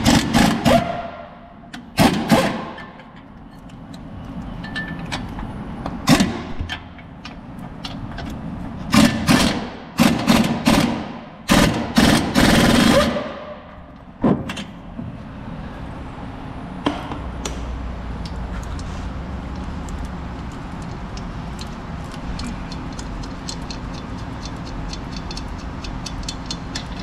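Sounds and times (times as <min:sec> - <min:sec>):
impact wrench bursts: 0:00.0 - 0:01.1, 0:02.0 - 0:02.9, 0:08.9 - 0:13.5.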